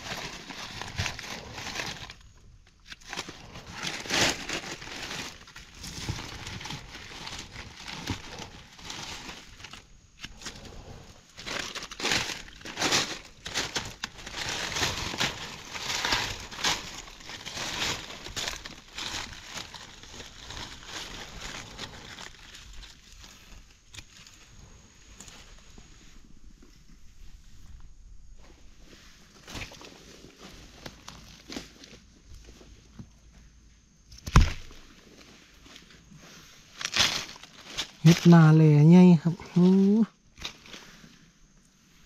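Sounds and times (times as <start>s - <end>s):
dry leaves rustling and crunching: 0.0s - 26.4s, 28.5s - 33.1s, 34.2s - 41.2s.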